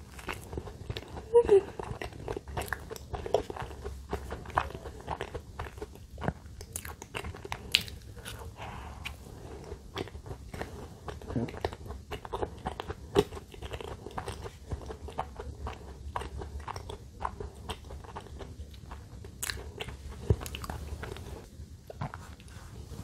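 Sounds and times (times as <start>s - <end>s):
close chewing with wet smacking: 0.0s - 22.7s.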